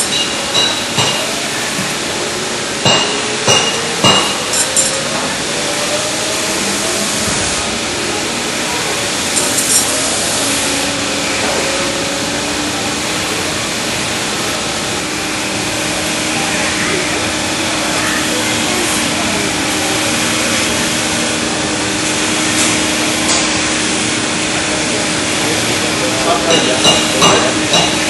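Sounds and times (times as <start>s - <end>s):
sharp metallic clinks: 2.9s - 5.0s.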